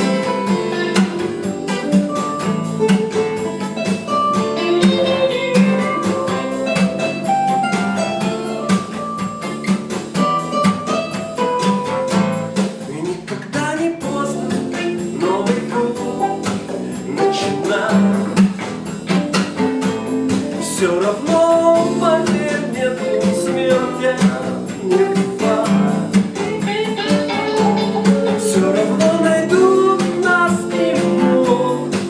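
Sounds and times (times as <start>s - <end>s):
acoustic guitar strumming: 0.0s - 32.0s
backing track through small speaker: 12.1s - 32.0s.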